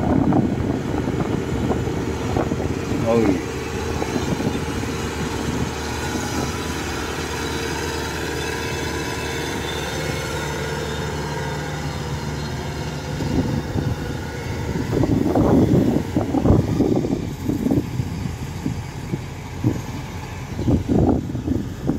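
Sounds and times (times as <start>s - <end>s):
combine harvester engine drone: 0.0s - 21.9s.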